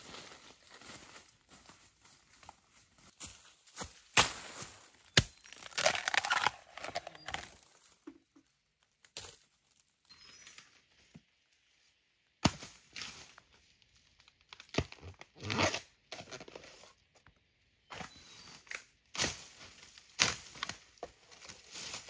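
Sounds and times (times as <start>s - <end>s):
tearing and crackling: 5.1s - 7.6s.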